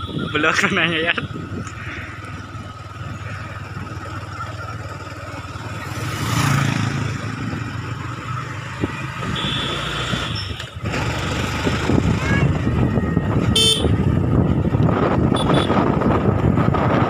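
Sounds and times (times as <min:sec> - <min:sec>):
wind noise: 0:00.0 - 0:04.0, 0:08.6 - 0:17.0
motorcycle engine running: 0:00.0 - 0:17.0.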